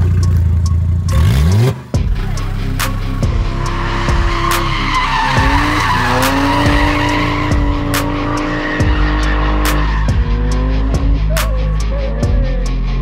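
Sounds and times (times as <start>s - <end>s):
car engine at high revs: 0.0s - 13.0s
music with deep bass beat: 0.0s - 13.0s
tyres squealing: 2.2s - 13.0s.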